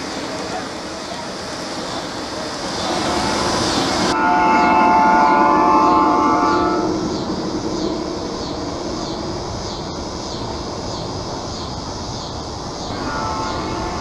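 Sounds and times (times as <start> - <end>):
model train rolling on track: 0.0 - 14.0
steady horn tone: 4.1 - 7.5, 12.9 - 14.0.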